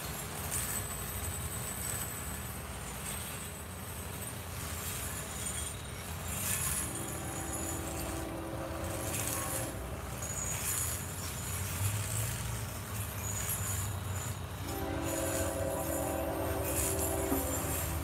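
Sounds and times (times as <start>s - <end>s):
train rumbling: 0.1s - 18.0s
faint train horn: 6.4s - 11.6s, 14.2s - 18.0s.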